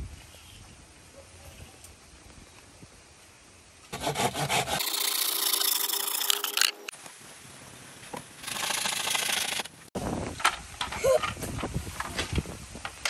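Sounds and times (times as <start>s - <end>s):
saw cutting through wood: 3.9s - 6.9s, 8.4s - 9.7s.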